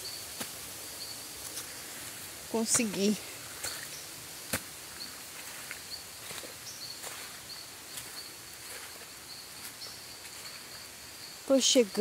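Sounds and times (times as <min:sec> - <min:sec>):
insects trilling: 0:00.0 - 0:12.0
outdoor background noise: 0:00.0 - 0:12.0
footsteps on wet ground: 0:01.4 - 0:10.8.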